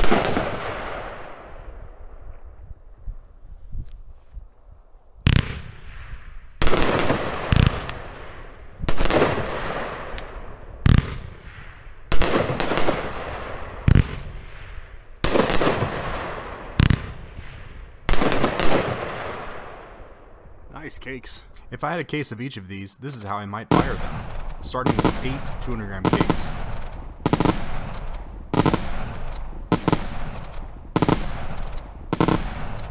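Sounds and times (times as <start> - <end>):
firework shells bursting: 23.7 - 32.9.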